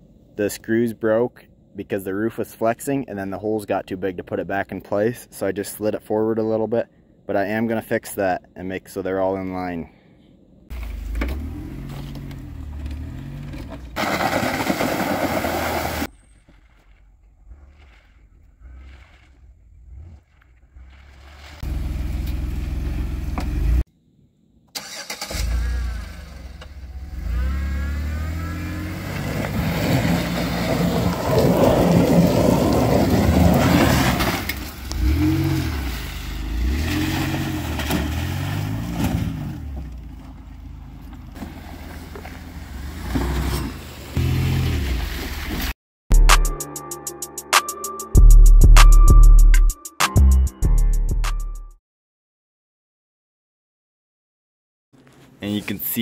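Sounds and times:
minivan engine revving: 10.7 - 16.1, 19.8 - 23.9, 24.8 - 45.5.

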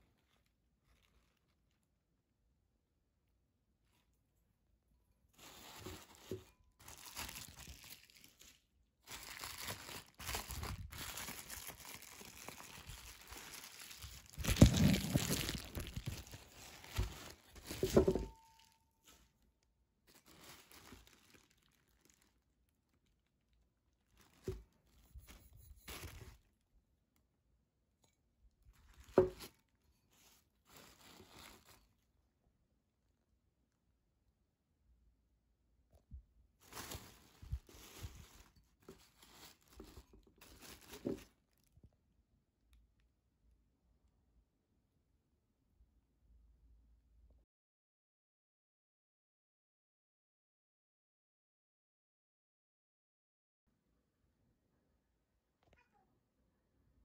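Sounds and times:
bubble wrap and paper crinkling: 0.0 - 2.1, 5.4 - 26.6, 28.7 - 32.0, 36.6 - 41.7.

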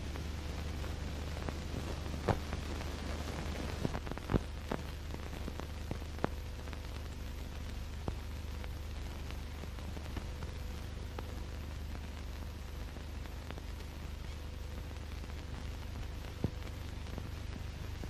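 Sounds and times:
crackles and pops: 0.0 - 18.0
film soundtrack hiss and hum: 0.0 - 18.0.

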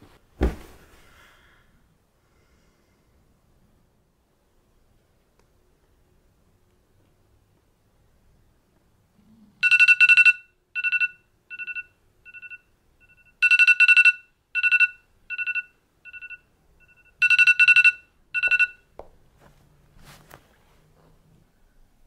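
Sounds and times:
phone timer alarm beeping: 9.6 - 18.9.

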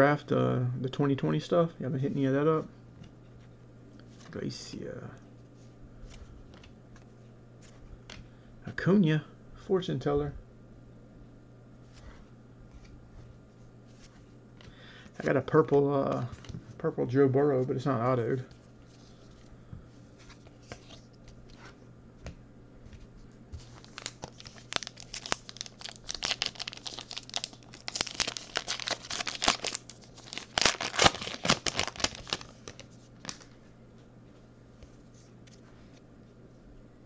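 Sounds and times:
foil wrapper crinkling: 23.6 - 33.6.

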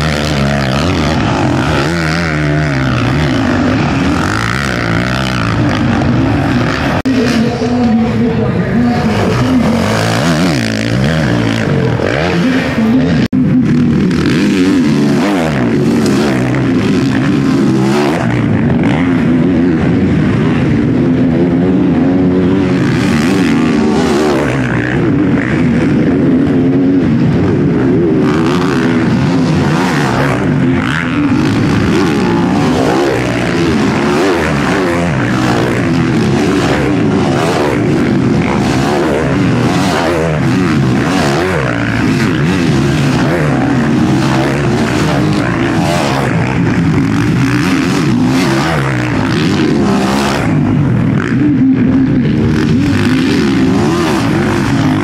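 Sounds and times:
motocross engines revving: 0.0 - 55.0.

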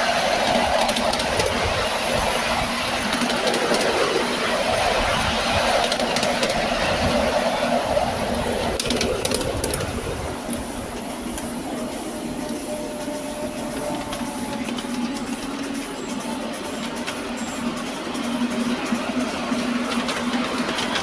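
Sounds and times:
train wheels rumbling on track: 0.0 - 21.0
clicks over rail joints: 8.7 - 10.6.

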